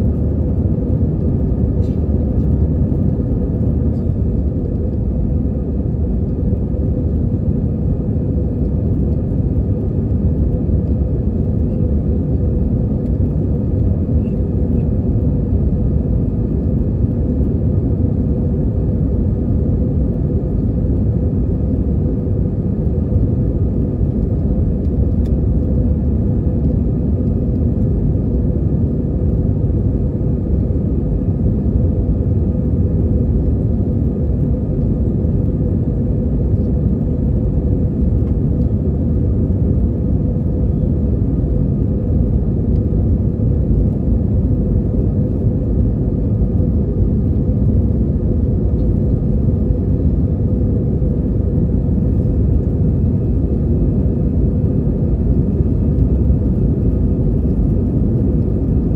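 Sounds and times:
aircraft cabin engine rumble: 0.0 - 58.9
steady hum: 0.0 - 58.9.

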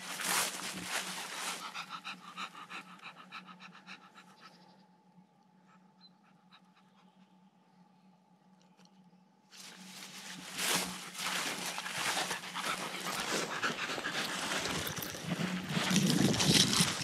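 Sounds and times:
dog panting: 0.7 - 4.6, 10.6 - 17.0.

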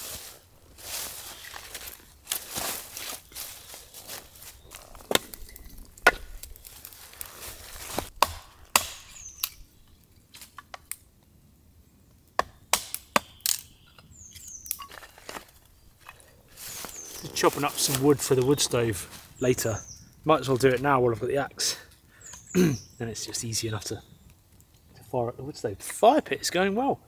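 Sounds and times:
axe chopping firewood: 5.0 - 6.6, 7.8 - 9.6, 12.4 - 13.6.

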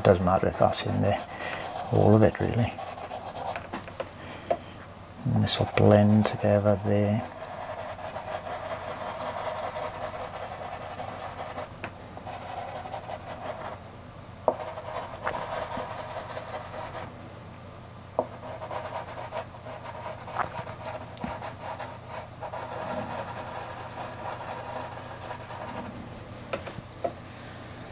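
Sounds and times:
pastel scratching on paper: 0.6 - 3.8, 5.4 - 13.8, 14.5 - 17.1, 18.2 - 25.9.

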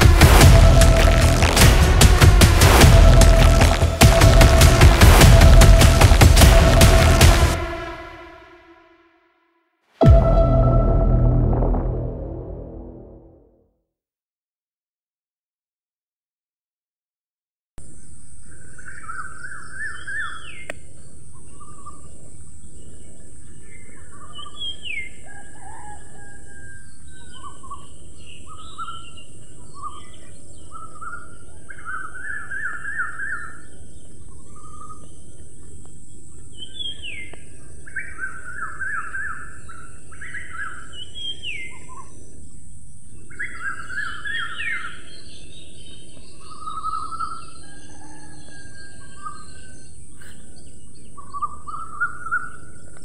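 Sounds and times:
songbirds singing: 17.9 - 53.0.

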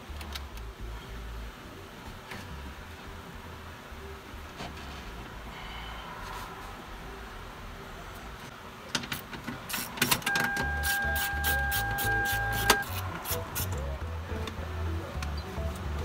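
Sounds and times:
steady high beep tone: 10.3 - 12.9.

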